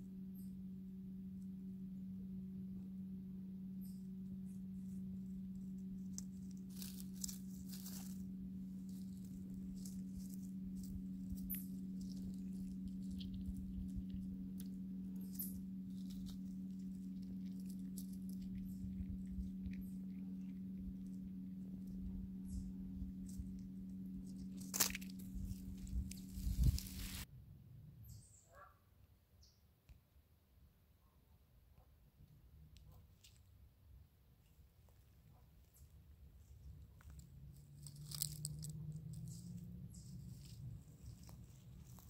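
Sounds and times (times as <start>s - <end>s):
steady low hum: 0.0s - 27.3s, 35.2s - 42.0s
rustling in dry pine needles: 4.3s - 27.3s, 34.4s - 42.0s
chipmunk cracking seeds: 8.8s - 27.2s, 37.0s - 42.0s.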